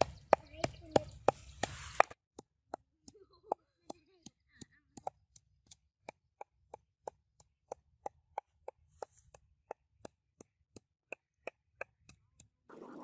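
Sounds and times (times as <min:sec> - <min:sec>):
pestle pounding in mortar: 0:02.4 - 0:12.5.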